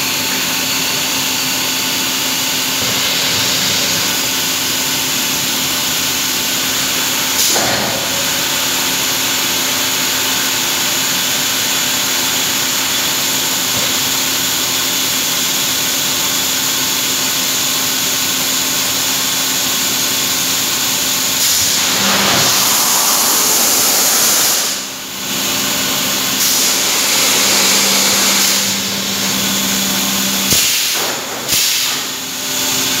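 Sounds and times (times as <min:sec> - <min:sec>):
plant machinery hum: 0:19.6 - 0:31.3
steam hissing from machinery: 0:19.9 - 0:32.2.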